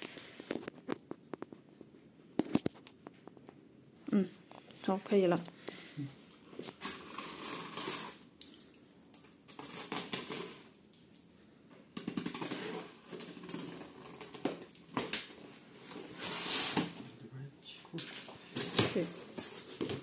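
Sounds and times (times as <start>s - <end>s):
tape ripping: 6.6s - 8.2s, 9.5s - 10.7s, 12.0s - 17.0s.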